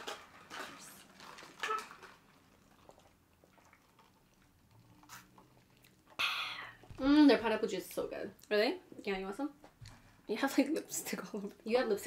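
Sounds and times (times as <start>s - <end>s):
sipping through straws: 5.0s - 5.4s.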